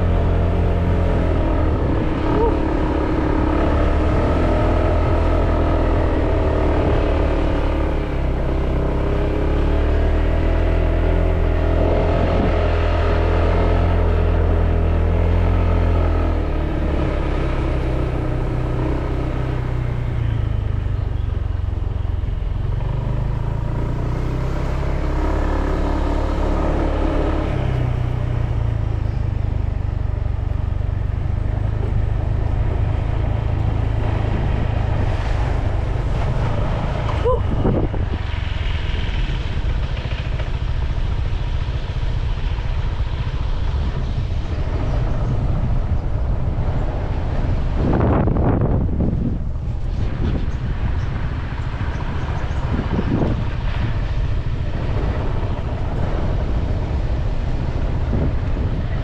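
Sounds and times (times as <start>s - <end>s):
scooter engine running: 0.0s - 10.2s
road and wind noise: 0.0s - 59.0s.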